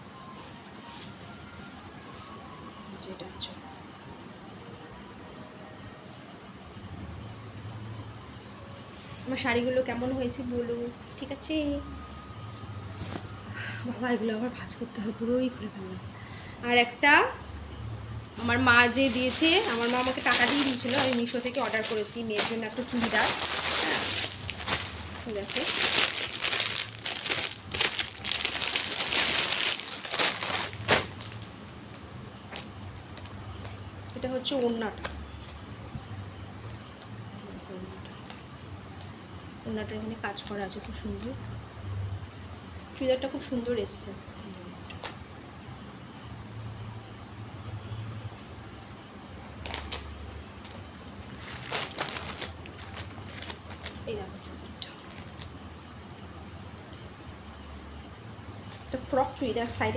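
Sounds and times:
plastic bag crinkling: 0:18.4 - 0:31.6, 0:38.0 - 0:38.7, 0:49.6 - 0:54.2, 0:54.8 - 0:55.6.

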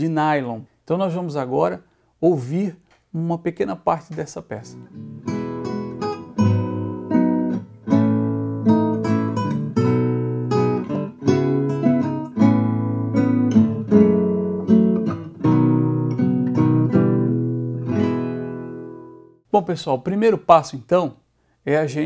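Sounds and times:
classical guitar playing: 0:04.8 - 0:19.4.

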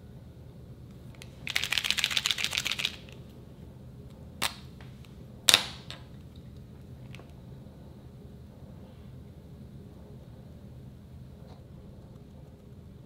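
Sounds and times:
marker ball rattling when shaken: 0:01.2 - 0:03.2.

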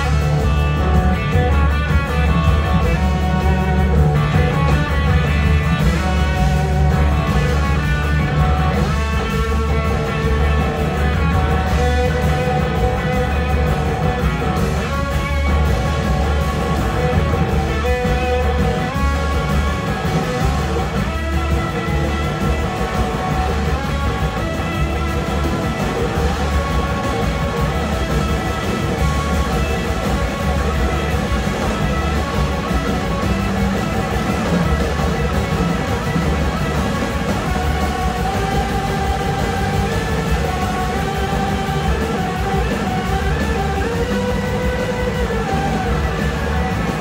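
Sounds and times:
electric guitar lead: 0:00.0 - 0:47.0
live rock band playing: 0:00.0 - 0:47.0.

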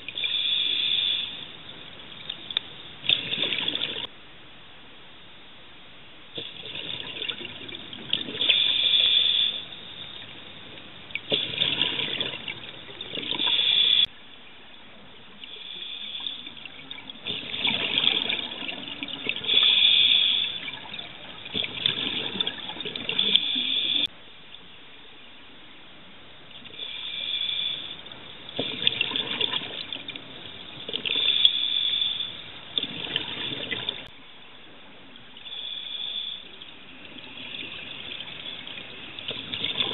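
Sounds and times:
underwater regulator bubbles: 0:03.0 - 0:04.1, 0:11.2 - 0:14.1, 0:15.5 - 0:24.1, 0:28.5 - 0:34.1, 0:35.6 - 0:39.9.

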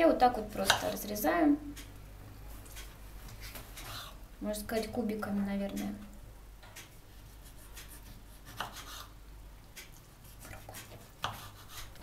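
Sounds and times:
knife slicing scrapes: 0:07.4 - 0:09.1, 0:10.2 - 0:12.0.

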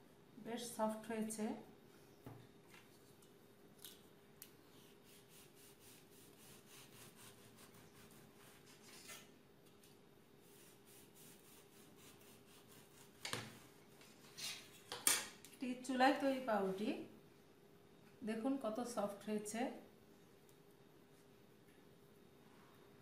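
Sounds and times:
knife sawing through bread: 0:05.0 - 0:09.2.

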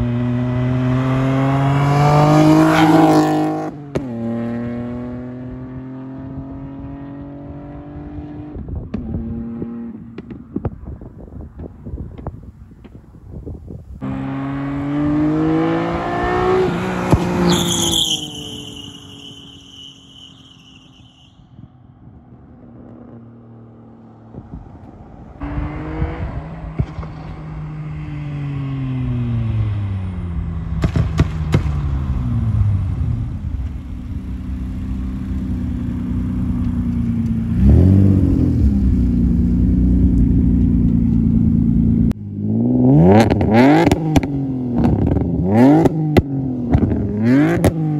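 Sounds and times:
car engine accelerating past: 0:00.0 - 0:08.6, 0:14.0 - 0:19.6.

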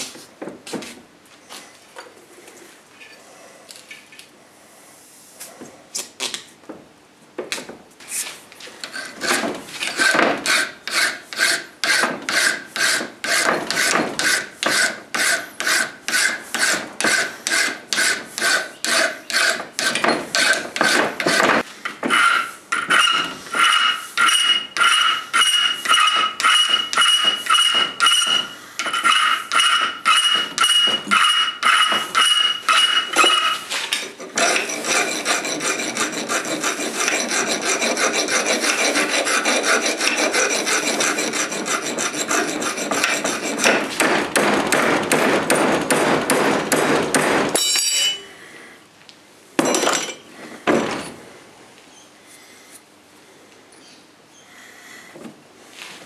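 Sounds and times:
hand file rasping on steel: 0:08.8 - 0:33.6, 0:34.2 - 0:44.0
high ringing: 0:47.6 - 0:48.3.

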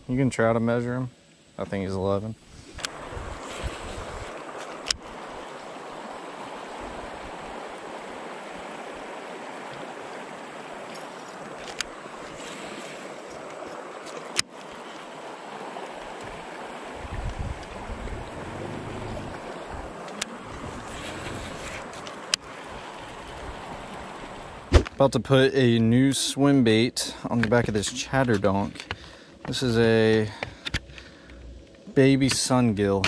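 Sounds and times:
moving water: 0:00.0 - 0:33.0
wind: 0:00.0 - 0:33.0
wind buffeting microphone: 0:02.9 - 0:04.4, 0:16.3 - 0:24.8.

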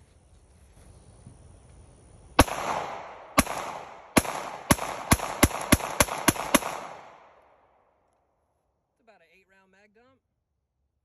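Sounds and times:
pistol gunshots: 0:02.4 - 0:07.6.

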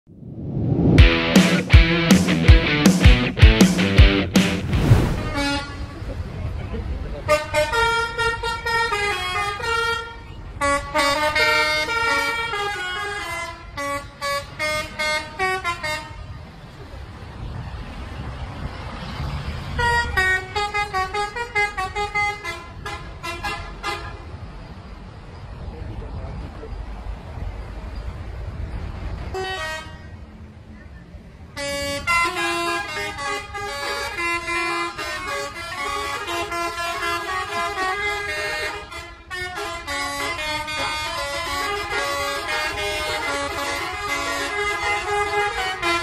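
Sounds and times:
multi-tone musical air horn: 0:05.2 - 0:06.0, 0:07.3 - 0:16.2, 0:31.6 - 0:46.0.

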